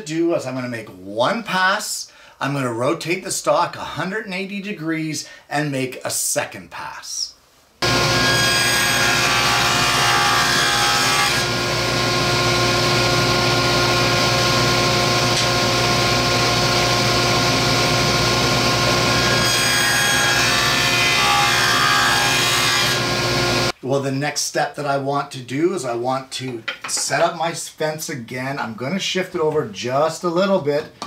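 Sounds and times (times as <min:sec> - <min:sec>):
table saw cutting wood: 0:07.8 - 0:23.7.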